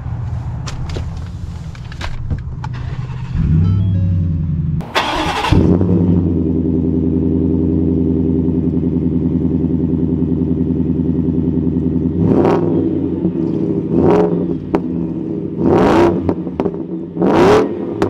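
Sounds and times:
engine revving: 0:02.7 - 0:18.0
truck engine exhaust burst: 0:02.8 - 0:07.6
pulsing engine idle: 0:02.8 - 0:15.5.

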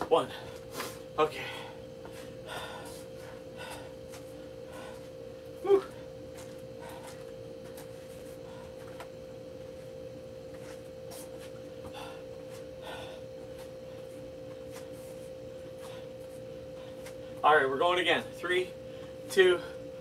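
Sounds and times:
constant steady tone: 0:00.0 - 0:20.0
faint hard breathing: 0:00.2 - 0:09.0, 0:11.1 - 0:17.4.

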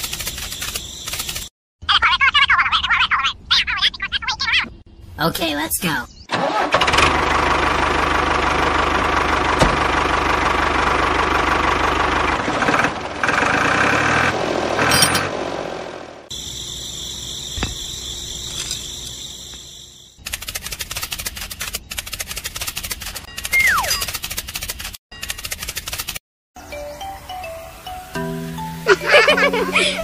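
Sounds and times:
tractor engine running: 0:06.3 - 0:23.3.

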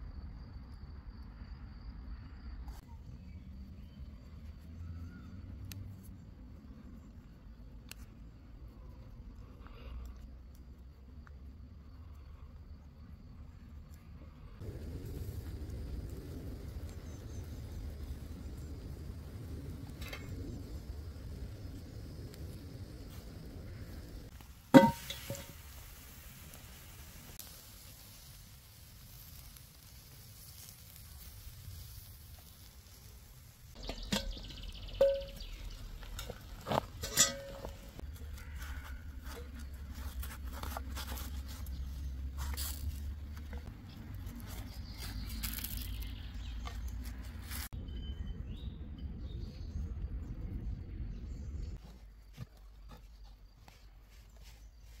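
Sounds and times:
skewers sizzling over embers: 0:14.4 - 0:47.8
sharp knocks and clinks: 0:33.8 - 0:38.0.

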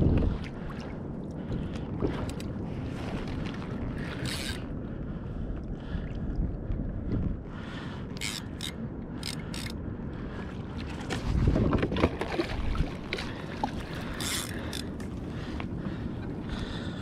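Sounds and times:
fishing gear clicks and knocks: 0:04.0 - 0:04.7, 0:08.2 - 0:09.8, 0:11.0 - 0:15.7.

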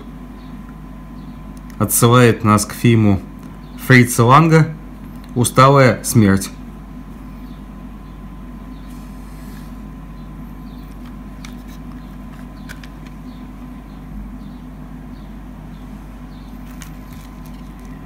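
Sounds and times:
low background hum: 0:00.0 - 0:18.0
plastic cd case clicks: 0:10.9 - 0:13.2.

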